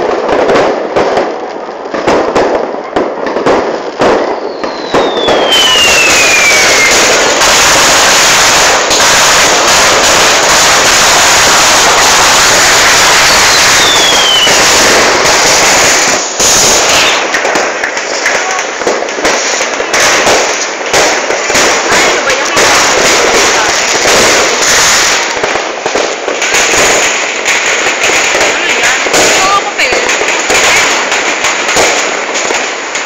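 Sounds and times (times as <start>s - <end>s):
firecrackers rapid crackle: 0.0s - 33.0s
firework bangs: 0.0s - 33.0s
falling firework whistles: 4.0s - 17.6s.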